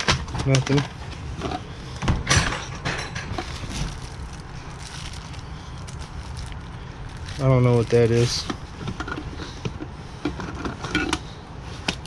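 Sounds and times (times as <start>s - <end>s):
plastic cases clacking: 0.0s - 6.6s
plastic bag rustling: 0.0s - 9.6s.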